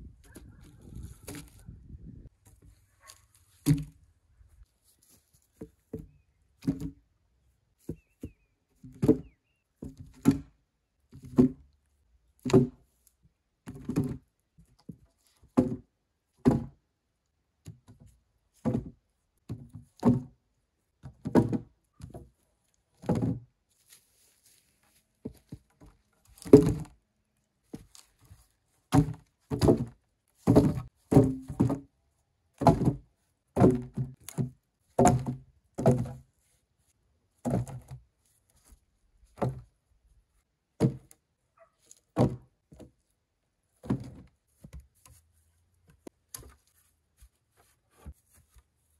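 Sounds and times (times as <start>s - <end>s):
logs thunking onto stack: 3.6s - 4.0s, 26.4s - 27.0s, 28.9s - 31.9s, 32.6s - 33.0s, 33.6s - 36.2s.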